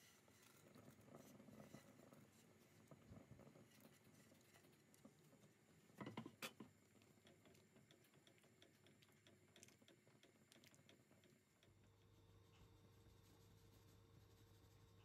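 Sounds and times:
spatula stirring a pot: 0.0s - 11.9s
soup simmering in a pot: 0.0s - 14.3s.

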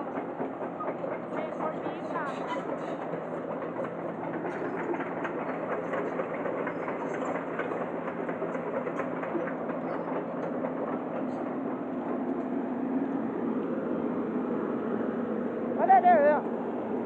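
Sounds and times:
clatter of excavator tracks: 0.4s - 11.0s.

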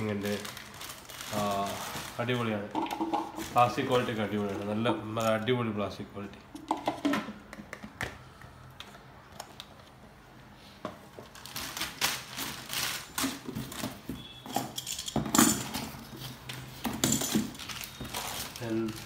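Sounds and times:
plastic wrapping crinkling: 0.0s - 5.7s, 11.2s - 14.4s, 15.9s - 19.0s.

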